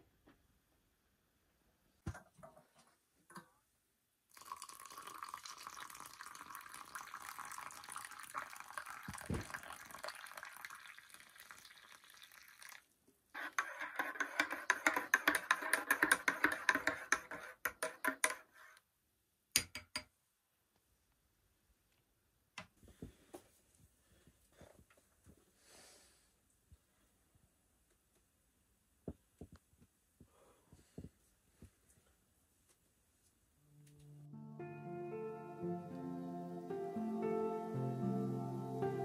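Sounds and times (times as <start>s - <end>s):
liquid dripping: 4.3s - 12.9s
liquid pouring into container: 4.3s - 15.0s.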